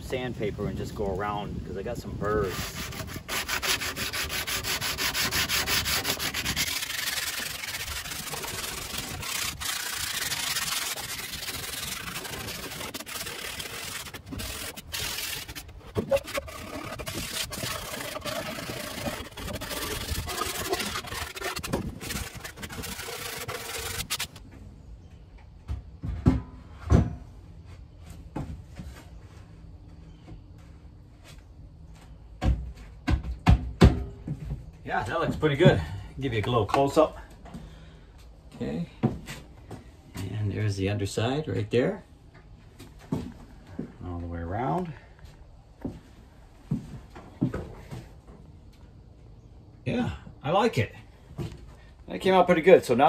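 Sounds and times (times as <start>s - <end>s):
sandpaper rubbing wood: 2.3s - 24.4s.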